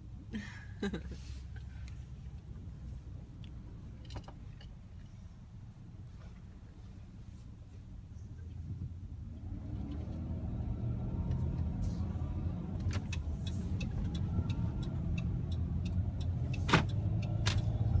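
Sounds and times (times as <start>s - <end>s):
engine and road rumble: 0.0s - 18.0s
light ticks: 12.8s - 17.7s.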